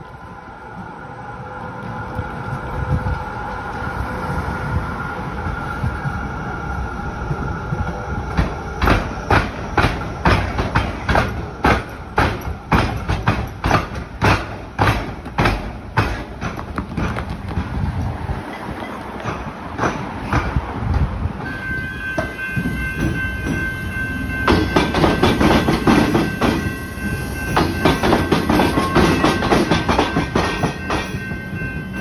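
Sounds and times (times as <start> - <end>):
faint steady tram whine: 0.0 - 32.0
tram wheels clacking over rail crossing: 0.0 - 32.0.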